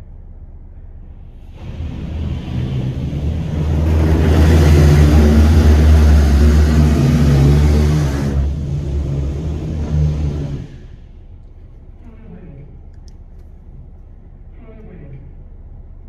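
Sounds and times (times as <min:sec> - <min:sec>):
steady low hum: 0:00.0 - 0:16.0
water spray hissing on car: 0:01.4 - 0:11.1.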